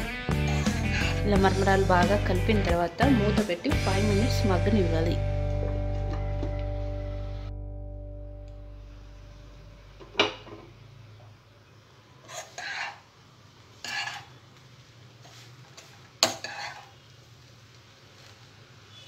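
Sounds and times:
spoon scraping puffed rice in pan: 0:00.4 - 0:01.3, 0:12.2 - 0:13.1, 0:13.7 - 0:14.4, 0:15.2 - 0:17.1.

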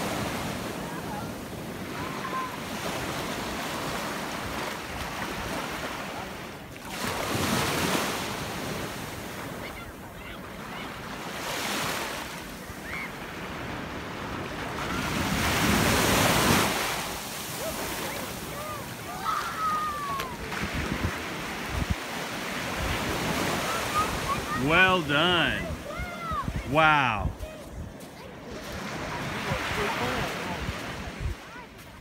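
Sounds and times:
surf breaking on sand: 0:00.0 - 0:32.0
wind buffeting microphone: 0:20.0 - 0:22.1, 0:25.6 - 0:31.5.

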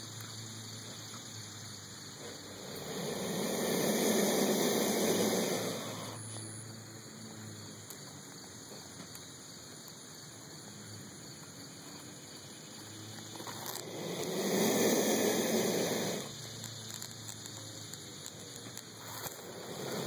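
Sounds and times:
lizard hissing: 0:02.1 - 0:06.3, 0:13.4 - 0:16.6, 0:19.0 - 0:20.0.

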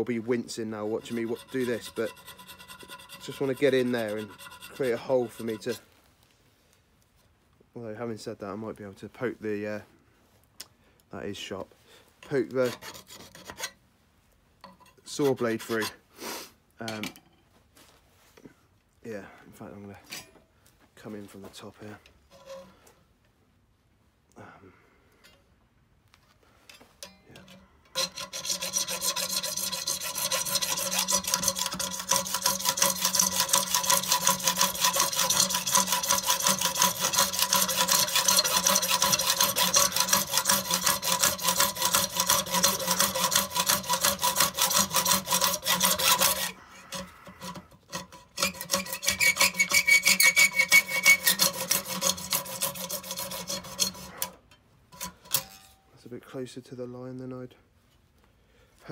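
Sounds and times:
hacksaw cutting metal: 0:00.0 - 0:05.8, 0:12.6 - 0:13.8, 0:14.7 - 0:16.0, 0:22.3 - 0:22.7, 0:27.0 - 0:55.8.

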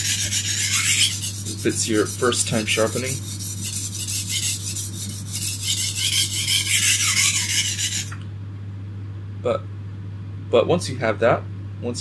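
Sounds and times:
knife scraping on sharpening stone: 0:00.0 - 0:08.2.

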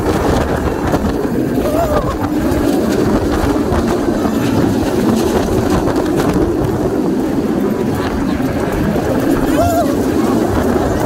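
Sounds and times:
roller coaster wheels rumbling on rails: 0:00.0 - 0:11.0
wind rushing past microphone: 0:00.0 - 0:11.0.

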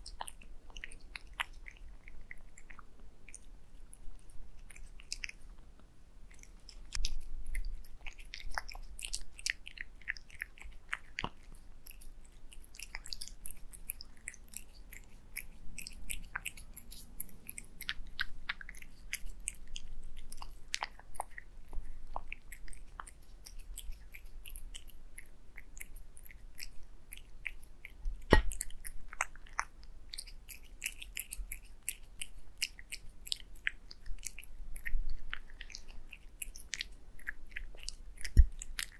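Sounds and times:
cats chewing and licking food: 0:00.0 - 0:38.9
sharp knock: 0:28.3 - 0:28.6.

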